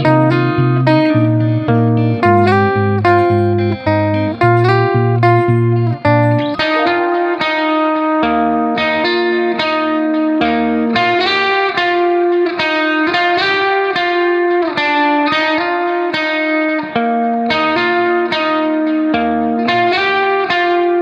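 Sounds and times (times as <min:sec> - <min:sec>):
guitar melody through effects: 0:00.0 - 0:21.0.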